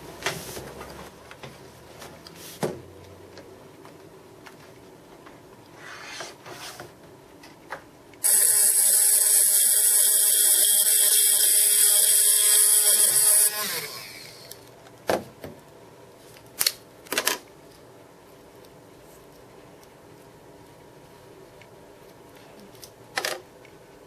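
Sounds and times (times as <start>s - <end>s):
rotary tool cutting plastic: 8.2s - 14.6s.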